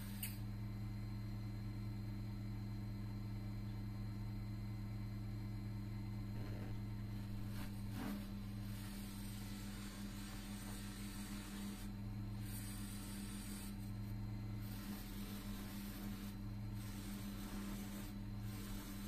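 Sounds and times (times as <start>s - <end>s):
bead rubbing on felt wheel: 6.4s - 19.0s.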